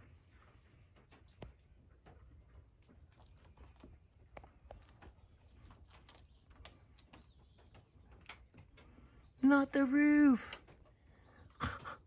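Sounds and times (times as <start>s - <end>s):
faint small clicks and ticks: 0.6s - 9.4s.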